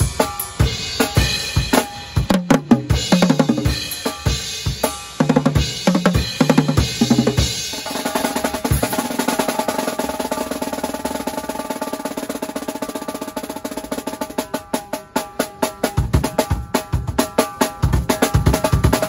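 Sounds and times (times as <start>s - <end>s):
drum kit hits and roll: 0.0s - 19.0s.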